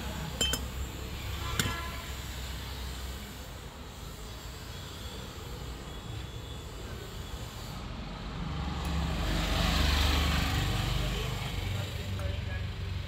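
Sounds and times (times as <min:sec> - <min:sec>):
passing vehicle engine rumble: 0:08.2 - 0:13.0.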